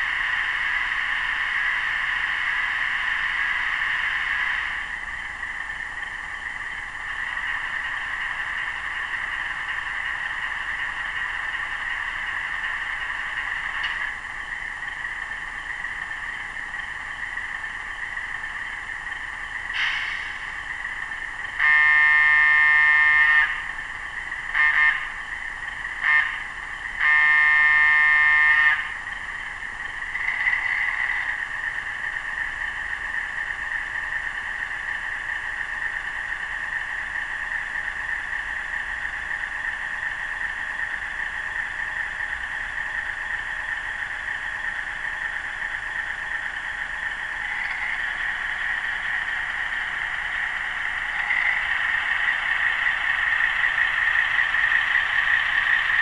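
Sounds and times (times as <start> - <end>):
diesel engine sound from small speaker: 0.0 - 56.0
model locomotive horn: 21.6 - 23.6, 24.5 - 25.2, 26.0 - 29.0.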